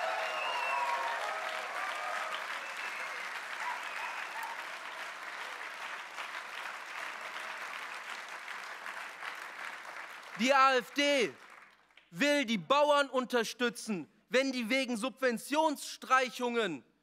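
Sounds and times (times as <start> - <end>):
audience applauding: 0.0 - 12.1.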